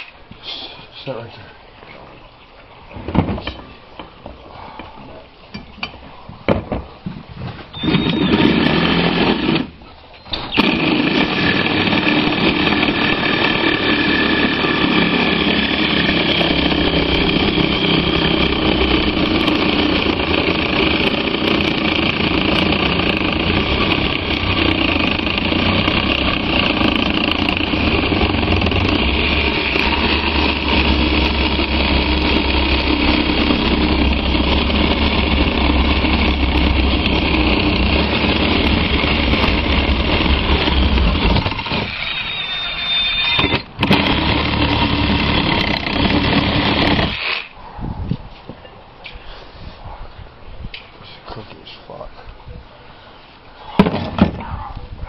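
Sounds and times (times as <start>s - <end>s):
power drill running under load: 7.8s - 9.8s, 10.4s - 47.6s.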